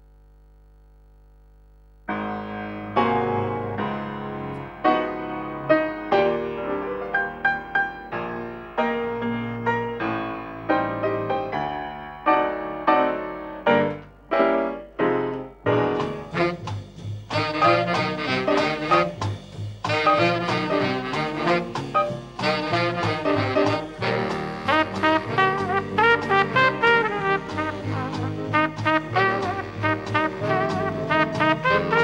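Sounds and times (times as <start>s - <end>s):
faint steady hum: 0.0s - 2.2s
piano music: 2.1s - 32.0s.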